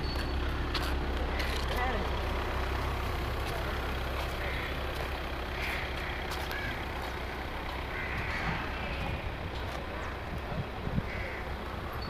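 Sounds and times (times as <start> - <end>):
low rumble of vehicles: 0.0 - 12.0.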